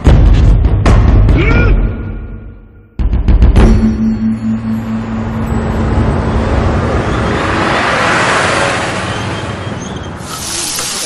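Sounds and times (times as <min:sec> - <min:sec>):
low held note: 0:03.6 - 0:06.9
street traffic: 0:04.3 - 0:11.0.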